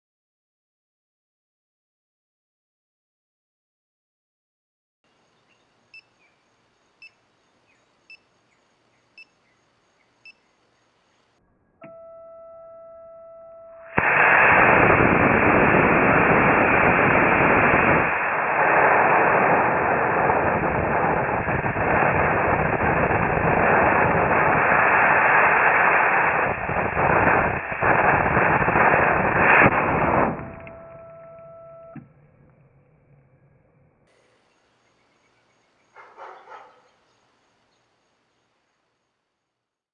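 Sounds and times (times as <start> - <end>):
high beep tone: 11.8 - 14.0, 30.3 - 32.0
rocket motor rushing noise: 13.9 - 31.0.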